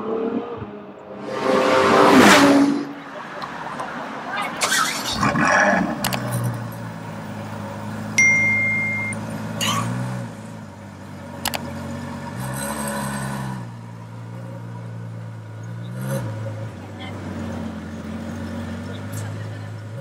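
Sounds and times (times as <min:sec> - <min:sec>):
car engine idling and revving: 0:00.0 - 0:20.0
short high electronic tone: 0:08.2 - 0:09.2.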